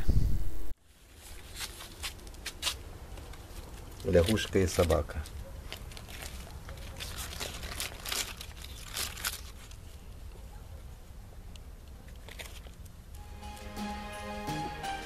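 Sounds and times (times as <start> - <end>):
leaves rustling and crinkling: 0.8 - 10.4, 12.0 - 13.1.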